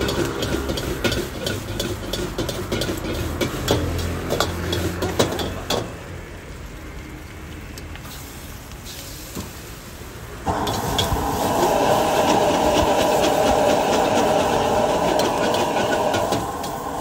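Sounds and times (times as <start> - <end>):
wok ladle clanking and scraping: 0.0 - 6.0
gas burner roaring: 0.0 - 17.0.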